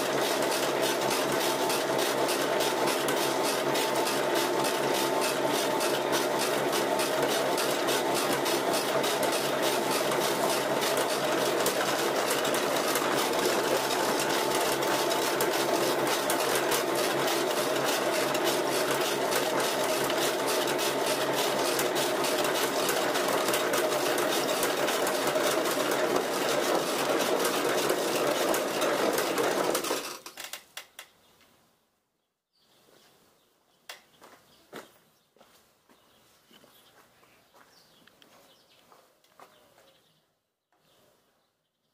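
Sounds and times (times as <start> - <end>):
pellet mill whirring and clattering: 0.0 - 30.4.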